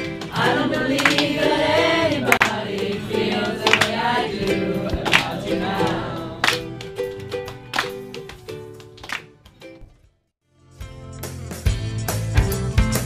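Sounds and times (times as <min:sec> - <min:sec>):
voices singing together: 0:00.1 - 0:07.2.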